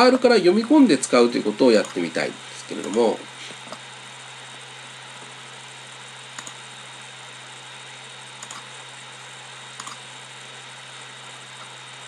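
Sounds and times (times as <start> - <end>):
steady hiss: 0.0 - 4.4.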